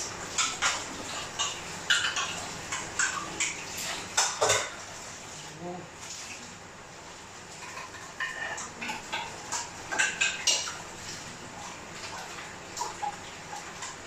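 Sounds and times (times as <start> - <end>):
dishes and cutlery clinking: 0.0 - 4.8, 7.5 - 11.2.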